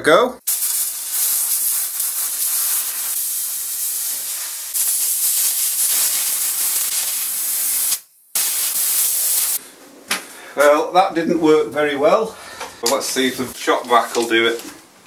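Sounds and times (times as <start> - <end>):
air blow gun hissing: 0.5 - 9.6.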